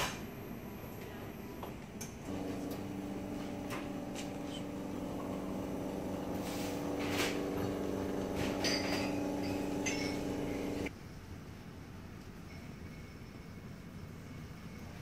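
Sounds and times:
machine hum: 2.2s - 10.9s
faint clinks: 7.7s - 10.9s.

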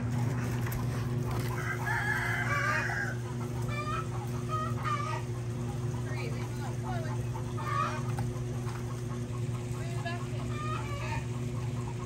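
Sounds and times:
chicken clucking: 0.1s - 12.0s
rooster crowing: 1.3s - 5.3s.

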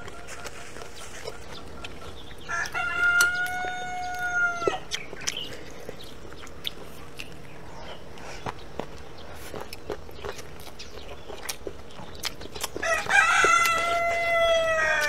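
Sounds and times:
rooster crowing: 2.4s - 4.9s, 12.8s - 15.0s.

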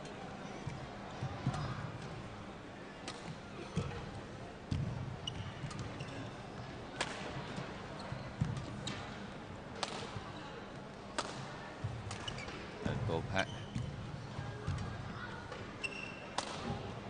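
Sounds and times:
shoes squeaking on court floor: 5.2s - 6.6s, 7.5s - 9.2s, 11.9s - 14.0s, 15.8s - 16.4s
rackets striking shuttlecock: 11.2s - 11.5s, 16.4s - 16.8s.

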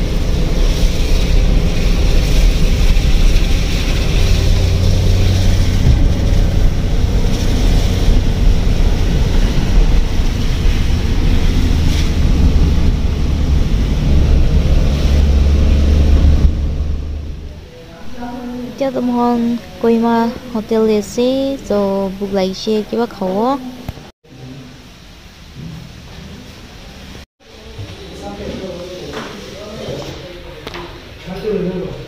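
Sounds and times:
road rumble inside car: 0.0s - 17.6s
hiss of tyres and rain: 0.0s - 18.8s, 24.3s - 30.2s.

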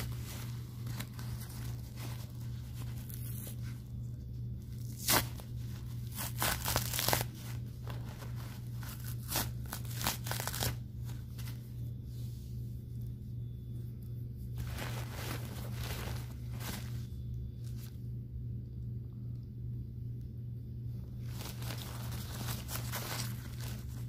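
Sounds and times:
diaper crinkling and tearing: 0.0s - 3.8s, 4.7s - 11.6s, 21.2s - 24.0s
steady low hum: 0.0s - 24.0s.

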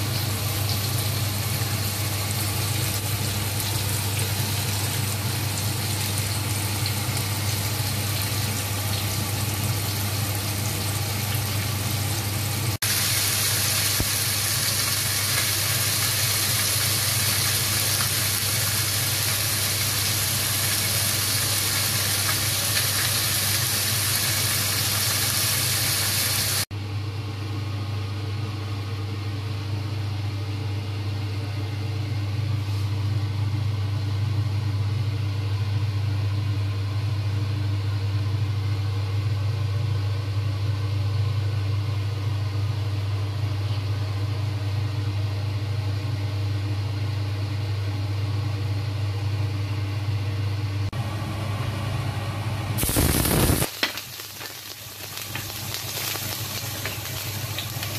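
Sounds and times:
fish sizzling in hot oil: 0.0s - 26.7s, 52.8s - 57.9s
low mechanical hum: 0.0s - 57.9s.

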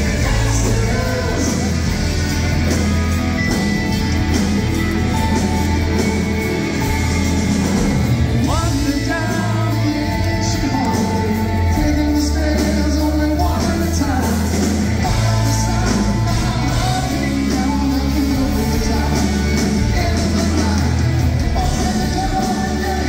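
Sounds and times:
lead singer singing: 0.0s - 2.5s, 7.7s - 23.0s
live rock band playing: 0.0s - 23.0s.

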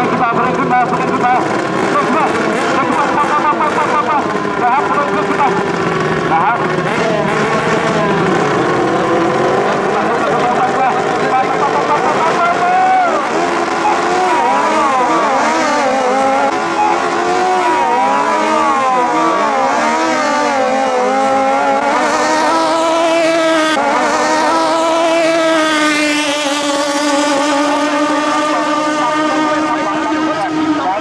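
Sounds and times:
speedboat engines revving: 0.0s - 31.0s.

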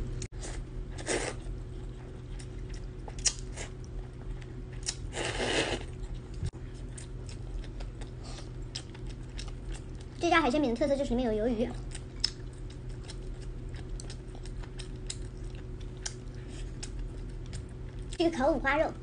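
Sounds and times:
wet chewing clicks: 2.4s - 3.5s, 11.9s - 18.2s
noodle slurping: 5.1s - 5.9s.

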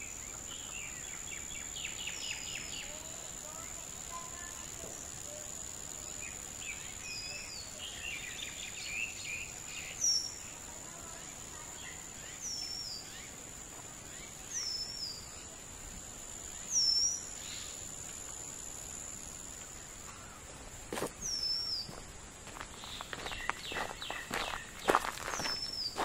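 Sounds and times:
high-pitched insect drone: 0.0s - 26.0s
footsteps on gravel: 20.9s - 21.2s, 21.8s - 26.0s.

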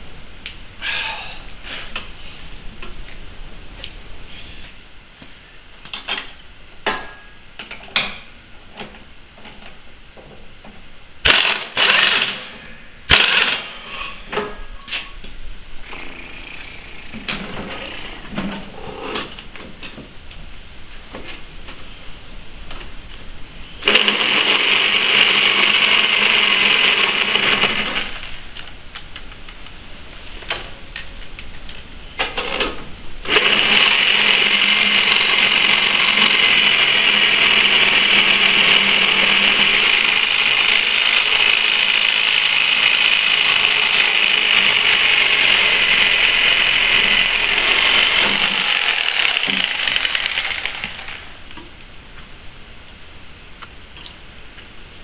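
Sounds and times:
reciprocating saw cutting steel: 33.3s - 51.4s.

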